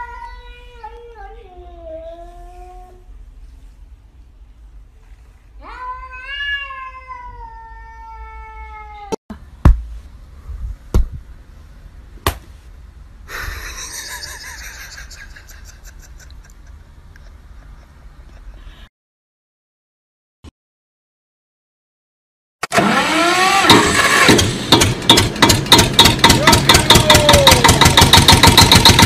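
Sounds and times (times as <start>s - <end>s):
cat meowing: 5.6s - 9.2s
sharp knocks: 23.7s - 29.0s.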